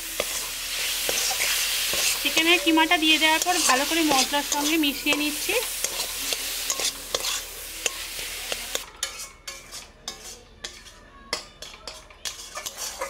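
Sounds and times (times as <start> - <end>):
meat sizzling: 0.0 - 8.9
metal spatula scraping a pan: 0.0 - 13.0.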